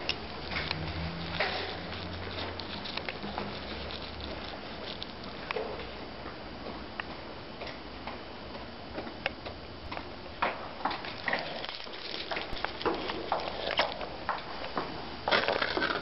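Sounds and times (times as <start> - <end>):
paper crinkling: 0.1 - 5.5, 11.0 - 14.1.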